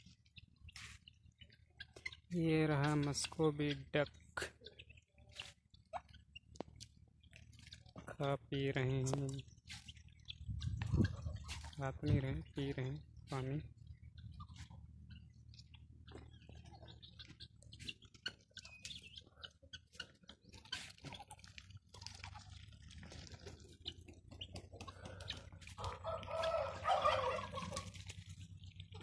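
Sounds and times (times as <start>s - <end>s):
small water splashes: 20.4s - 24.3s
rapid fowl calling: 23.5s - 28.2s.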